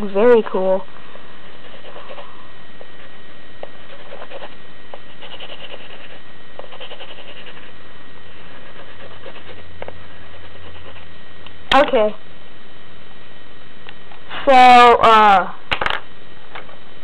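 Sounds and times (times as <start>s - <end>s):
low hum: 0.0s - 17.0s
coloring strokes on paper: 1.4s - 2.4s, 3.0s - 11.1s.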